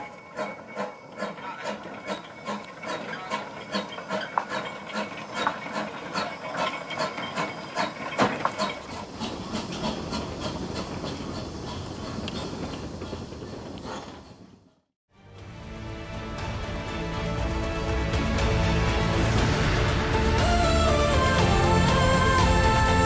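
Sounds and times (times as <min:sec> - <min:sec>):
steam locomotive chuffing: 0:00.0 - 0:14.2, 0:15.4 - 0:23.0
continuous steam hiss: 0:15.4 - 0:23.0.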